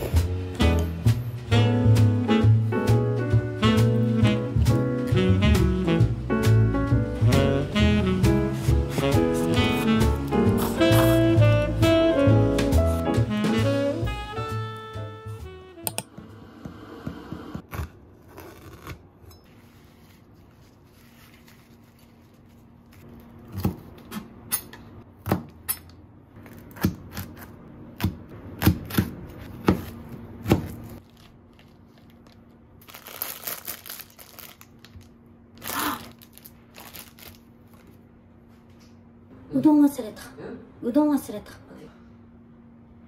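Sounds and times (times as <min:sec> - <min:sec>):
plastic package crinkling and tearing: 0:31.0 - 0:38.0.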